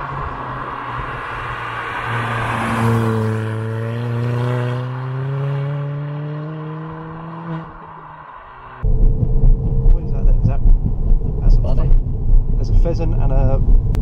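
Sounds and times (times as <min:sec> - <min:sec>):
car driving past accelerating: 0:00.0 - 0:10.6
road noise rushing: 0:00.0 - 0:14.0.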